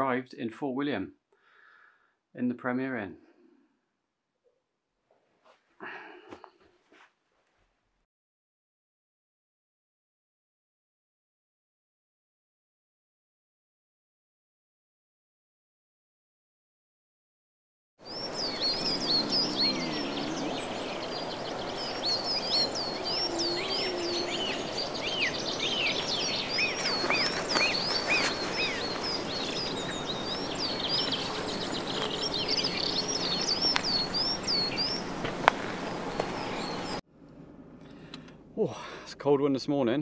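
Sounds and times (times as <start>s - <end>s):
small birds chirping and singing: 18.1s - 37.0s
outdoor background hiss: 18.1s - 39.8s.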